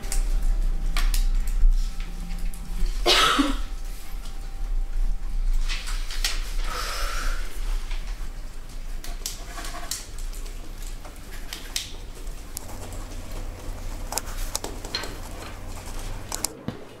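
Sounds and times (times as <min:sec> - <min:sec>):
low steady hum: 0:00.0 - 0:17.0
pens scratching on paper: 0:08.7 - 0:16.6.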